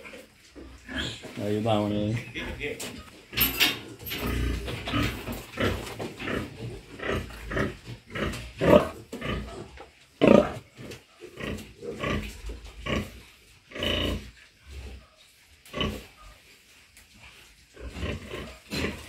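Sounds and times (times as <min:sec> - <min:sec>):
sow grunting: 0:03.3 - 0:14.3, 0:17.8 - 0:19.0.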